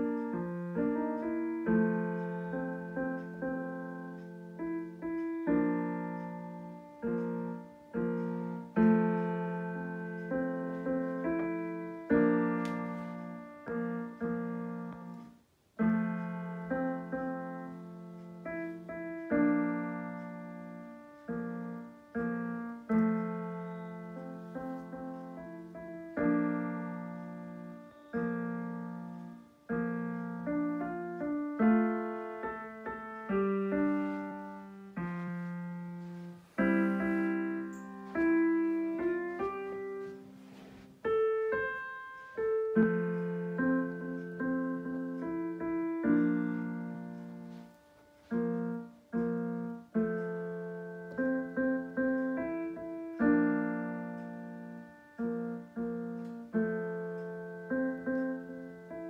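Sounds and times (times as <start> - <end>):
piano chords and melody: 0.0 - 59.0.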